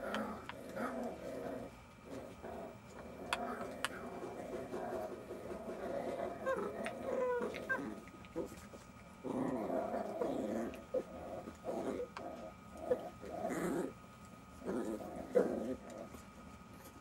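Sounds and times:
puppies growling: 0:00.0 - 0:17.0
puppy whines: 0:06.3 - 0:08.6.

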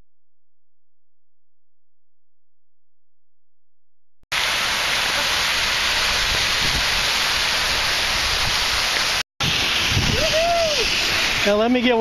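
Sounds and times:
fountain water jets splashing: 0:04.4 - 0:12.0.

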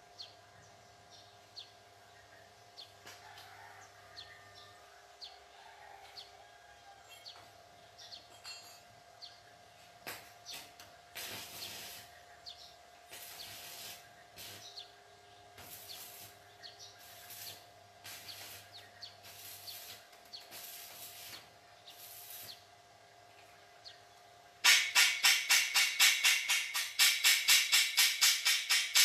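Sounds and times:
arc welding crackling hiss: 0:10.0 - 0:12.2, 0:13.0 - 0:22.7, 0:24.6 - 0:29.0.

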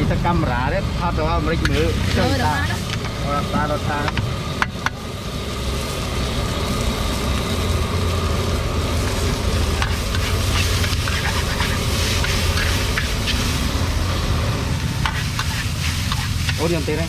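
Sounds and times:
noodles sizzling in a wok: 0:01.6 - 0:17.0
metal spatula scraping pan: 0:09.0 - 0:13.6, 0:15.0 - 0:16.6.

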